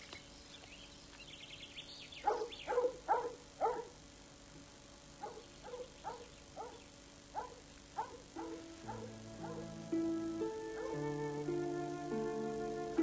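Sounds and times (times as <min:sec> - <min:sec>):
dog yapping: 0:02.2 - 0:03.9, 0:05.2 - 0:06.8, 0:07.4 - 0:09.6
soft background music: 0:08.5 - 0:13.0.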